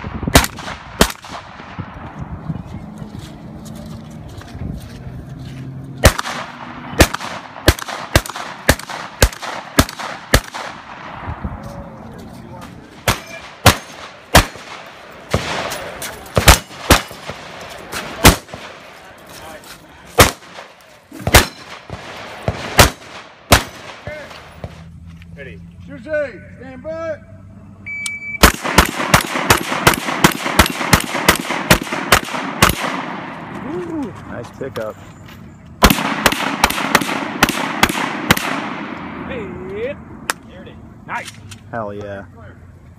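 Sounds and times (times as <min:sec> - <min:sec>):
shotgun shots with echo: 0:00.0 - 0:01.9, 0:06.0 - 0:11.4, 0:13.0 - 0:18.8, 0:20.2 - 0:24.8, 0:28.4 - 0:33.5, 0:35.8 - 0:39.3
shot-timer beep: 0:27.8 - 0:28.4.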